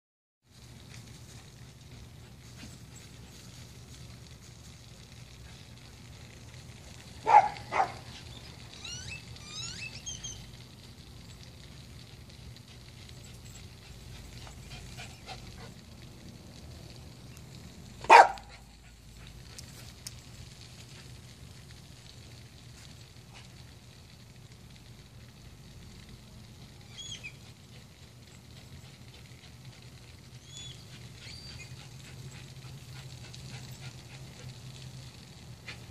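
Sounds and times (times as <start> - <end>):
dog barking: 7.2 - 8.1, 18.0 - 18.7
faint high chirps: 8.2 - 10.5.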